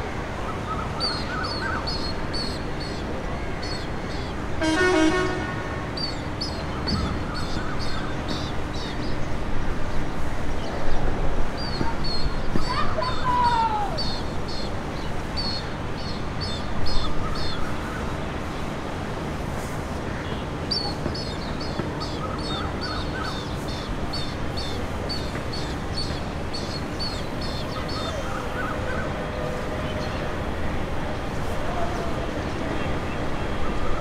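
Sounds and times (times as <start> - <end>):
jet engines idling: 17.8 - 34.0.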